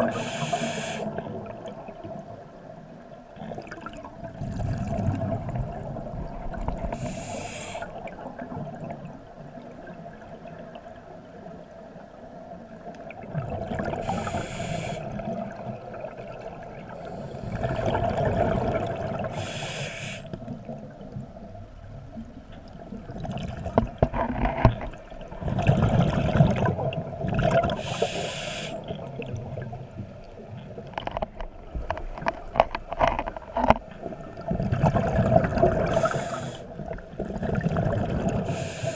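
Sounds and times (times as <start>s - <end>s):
regulator hissing on inhale: 0.0s - 1.2s, 6.9s - 8.0s, 14.0s - 15.2s, 19.3s - 20.4s, 27.8s - 28.9s, 35.8s - 36.7s, 38.4s - 38.9s
faint steady hum: 0.0s - 38.9s.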